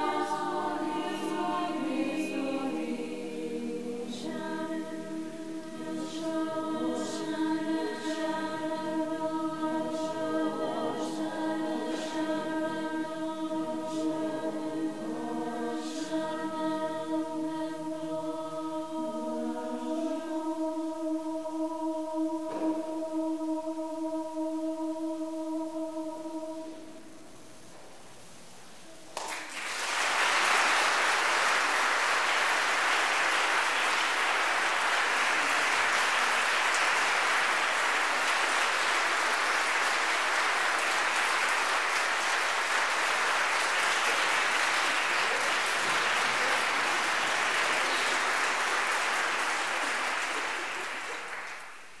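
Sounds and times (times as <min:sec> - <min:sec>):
choir holding a chord: 0:00.0 - 0:27.3, 0:30.8 - 0:51.2
audience applause: 0:29.2 - 0:51.9.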